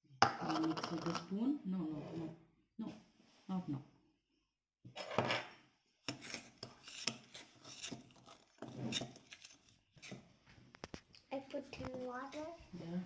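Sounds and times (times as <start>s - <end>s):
metal spoon scraping dough in bowl: 5.0s - 10.3s.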